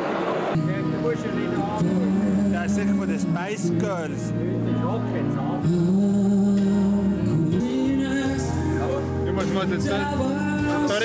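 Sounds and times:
instrumental accompaniment: 0:00.5 - 0:11.0
man singing into a microphone: 0:01.6 - 0:03.8, 0:05.6 - 0:11.0.

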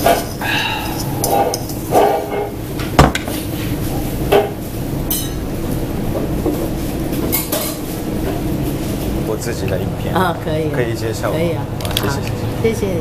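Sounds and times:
dishes and cutlery clinking: 0:00.0 - 0:03.3, 0:07.2 - 0:07.9
restaurant room hum: 0:00.0 - 0:13.0.

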